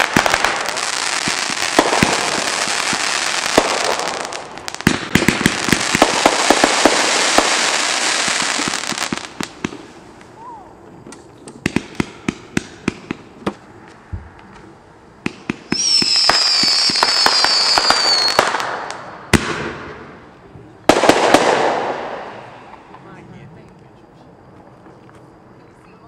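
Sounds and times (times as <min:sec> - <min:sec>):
firework bang: 0:00.0 - 0:09.9, 0:15.2 - 0:20.2, 0:20.9 - 0:23.0
firework crackling: 0:00.0 - 0:23.2
shrill firework whistle: 0:10.3 - 0:10.8, 0:15.7 - 0:18.6.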